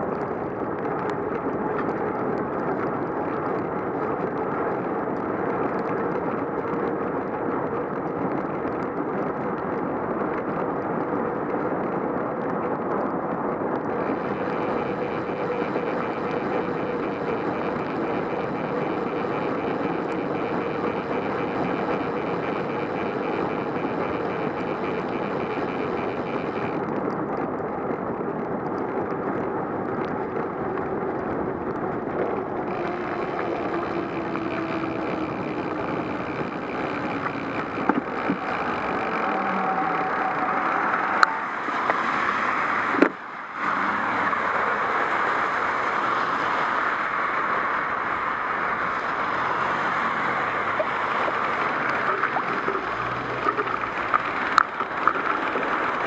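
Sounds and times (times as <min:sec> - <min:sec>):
bicycle tyres on wet road: 0:00.0 - 0:56.0
faint hum: 0:13.9 - 0:26.9, 0:32.5 - 0:42.5.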